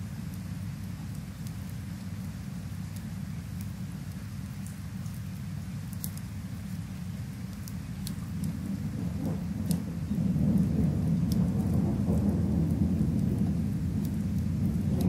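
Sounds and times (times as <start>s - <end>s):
fireplace crackling: 0.0s - 15.0s
steady rain: 0.0s - 15.0s
thunder rumbling: 8.2s - 15.0s.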